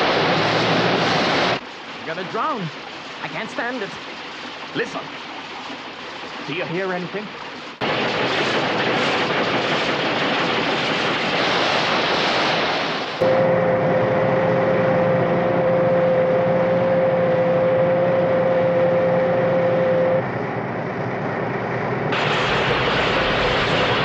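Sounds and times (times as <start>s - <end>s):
machine drone with high whine: 13.2s - 24.0s.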